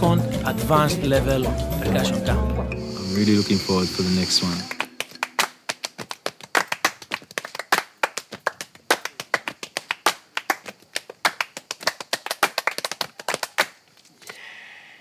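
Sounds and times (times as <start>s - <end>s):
hand claps: 4.5s - 13.8s.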